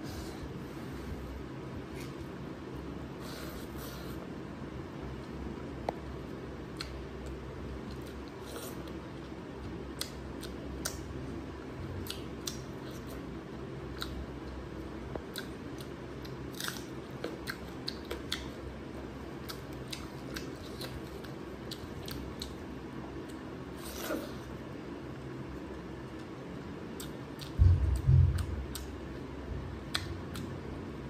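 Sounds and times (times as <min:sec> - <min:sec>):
steady low hum: 0:00.0 - 0:31.0
wet chewing and mouth smacks: 0:06.7 - 0:09.4.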